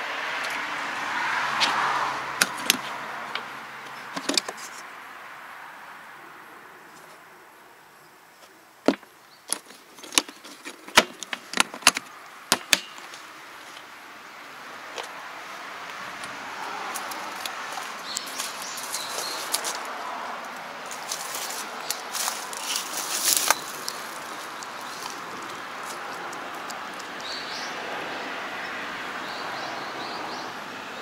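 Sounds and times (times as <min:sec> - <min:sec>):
tools rattling: 0:04.1 - 0:04.8, 0:08.9 - 0:13.2
plastic toolbox lid closing: 0:04.2 - 0:04.6, 0:08.9 - 0:13.0
latches snapping: 0:08.9 - 0:13.2
faint rustling with small ticks: 0:20.5 - 0:27.2.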